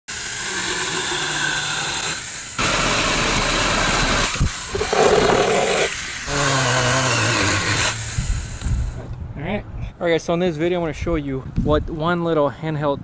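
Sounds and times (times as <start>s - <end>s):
chainsaw chain cutting wood: 0.1s - 8.6s
electric motor whining: 0.4s - 9.0s.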